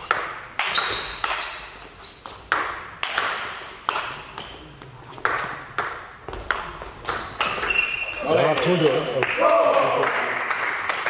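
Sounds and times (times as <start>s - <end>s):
ball clicking off rackets: 2.4s - 9.2s
ball bouncing on table: 5.2s - 9.2s.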